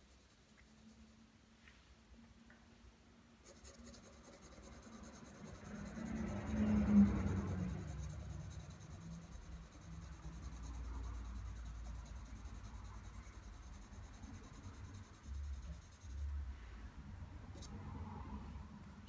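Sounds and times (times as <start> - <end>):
pencil scratching on paper: 0.0 - 1.2, 3.4 - 16.3.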